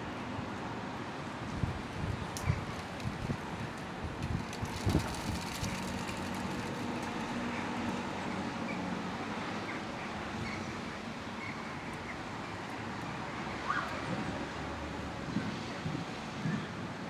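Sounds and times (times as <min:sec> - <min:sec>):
distant city traffic: 0:00.0 - 0:17.0.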